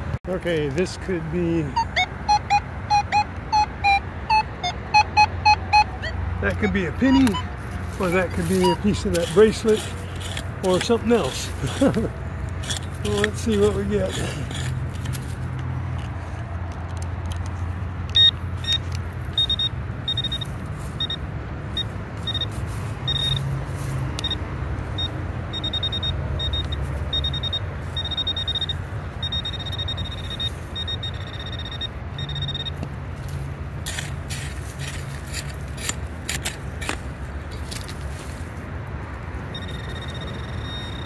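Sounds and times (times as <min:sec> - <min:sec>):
metal detector pinpointer beeping: 0:01.7 - 0:12.0, 0:12.6 - 0:15.2, 0:18.1 - 0:23.6, 0:24.2 - 0:34.1, 0:39.5 - 0:41.0
digging tool scraping gravelly dirt: 0:06.4 - 0:15.5, 0:33.2 - 0:38.6.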